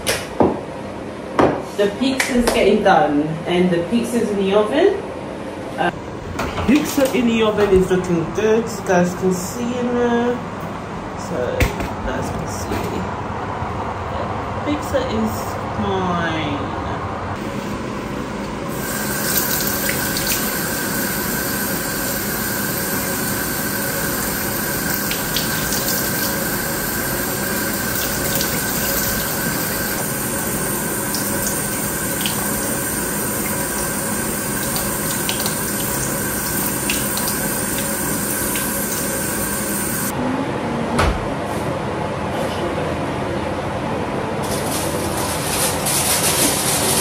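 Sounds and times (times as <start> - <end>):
tap water running: 18.7 - 40.1.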